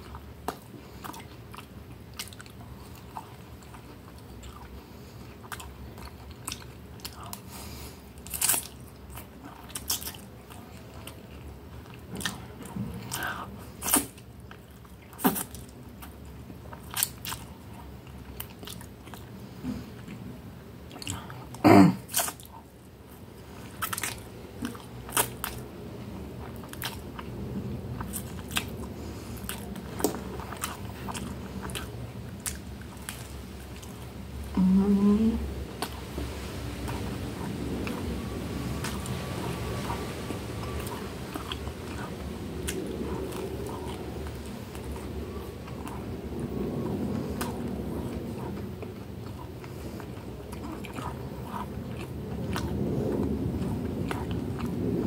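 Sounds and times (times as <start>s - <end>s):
chewing and slurping: 0.0s - 34.5s, 35.6s - 55.0s.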